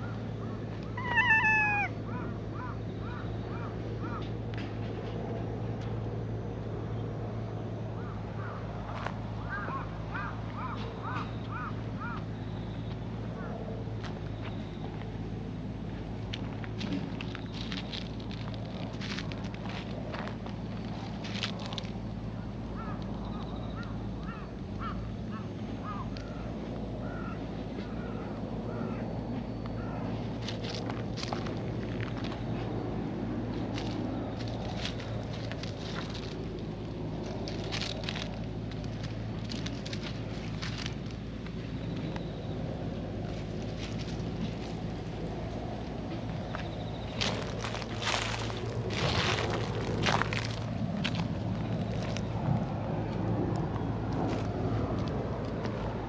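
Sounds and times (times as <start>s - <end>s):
cat short calls: 1.0s - 1.9s
cat meowing: 1.0s - 2.0s.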